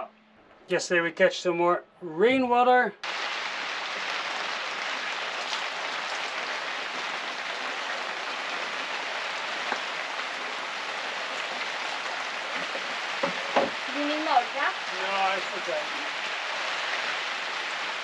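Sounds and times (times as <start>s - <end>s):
water pouring into a bucket: 3.0s - 14.1s.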